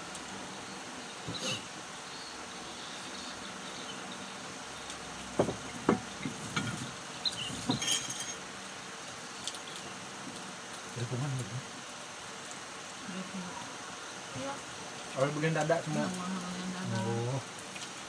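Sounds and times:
steady background hiss: 0.0s - 18.0s
plates clinking: 7.6s - 8.4s.

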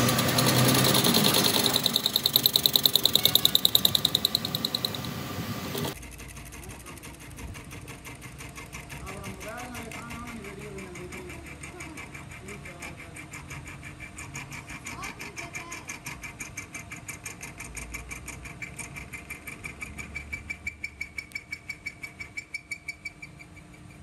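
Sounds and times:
metal lathe whining: 0.0s - 6.0s
rapid even ticking: 0.0s - 22.1s.

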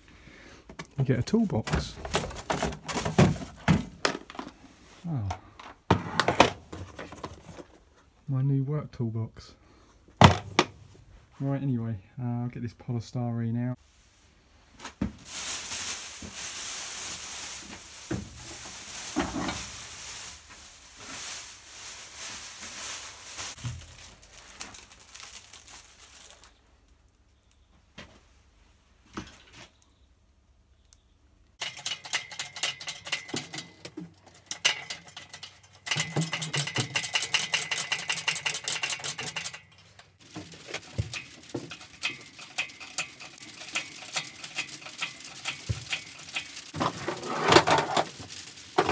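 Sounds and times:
plastic wrapping crackling: 1.3s - 4.6s, 15.1s - 27.6s, 39.2s - 48.9s.

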